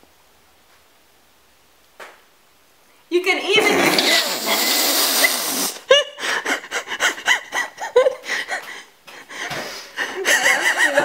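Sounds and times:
woman laughing hard: 0:05.8 - 0:08.9, 0:10.0 - 0:11.0.

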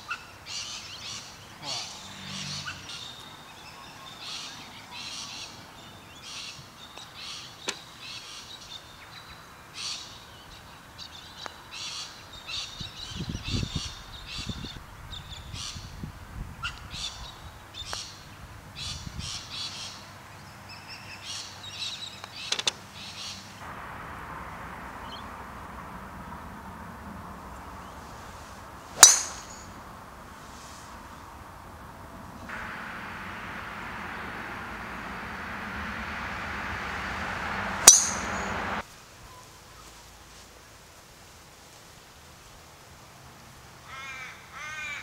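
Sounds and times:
steady outdoor hiss: 0:00.0 - 0:45.0
low rumbling: 0:23.6 - 0:38.8
birds calling: 0:29.0 - 0:29.8, 0:32.4 - 0:38.8.

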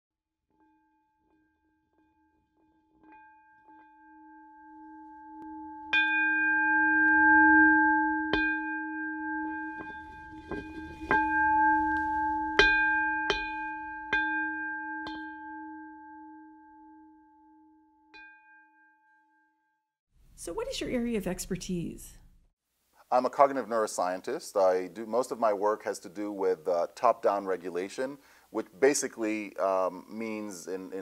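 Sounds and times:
singing bowl ringing: 0:00.6 - 0:19.7
singing bowl strikes: 0:03.0 - 0:18.6.

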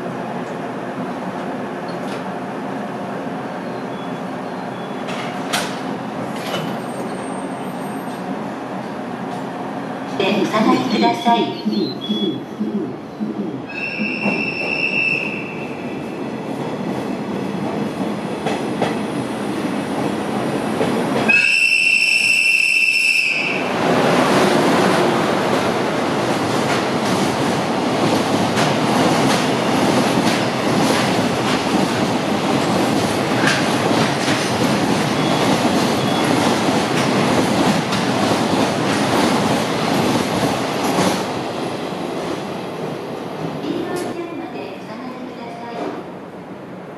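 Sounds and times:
high train whistle: 0:13.7 - 0:15.7, 0:21.3 - 0:23.7
train wheels clattering: 0:24.3 - 0:41.3.

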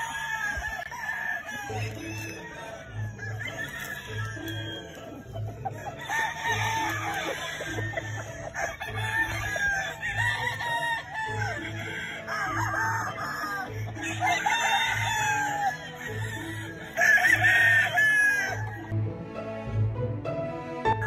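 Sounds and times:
roosters crowing and clucking: 0:00.0 - 0:19.7.

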